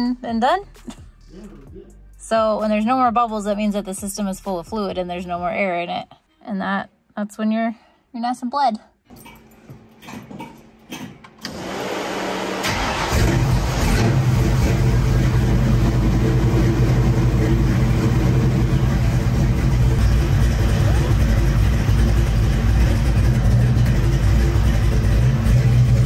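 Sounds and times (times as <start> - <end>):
car engine cranking and idling: 9.1 - 26.0.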